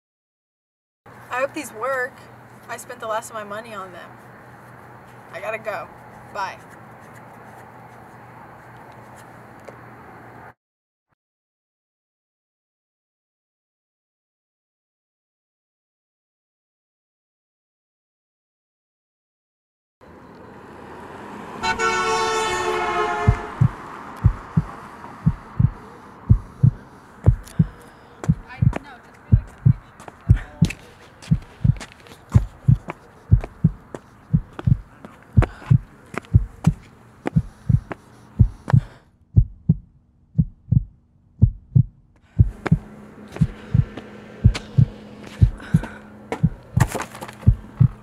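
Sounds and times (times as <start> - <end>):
car horn: 21.6 - 23.8
heartbeat sound effect: 23.2 - 48.0.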